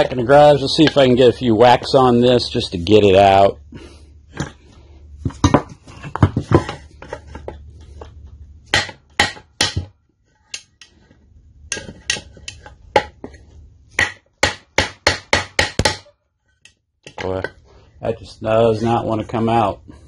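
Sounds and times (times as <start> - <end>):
hammer knocking on wooden block: 8.7 - 9.9, 14.0 - 16.1.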